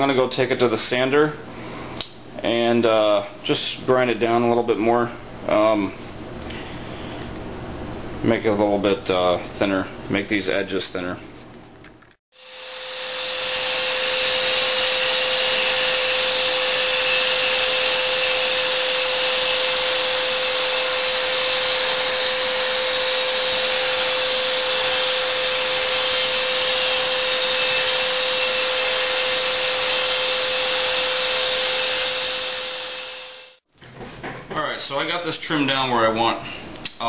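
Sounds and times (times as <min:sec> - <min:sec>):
belt sander grinding leather: 0:12.4 - 0:33.6.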